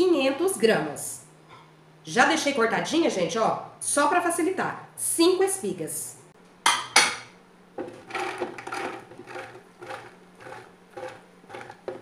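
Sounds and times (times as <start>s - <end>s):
plate knocking on stone countertop: 6.6s - 7.3s
corn kernels pattering and scraping: 7.8s - 12.0s.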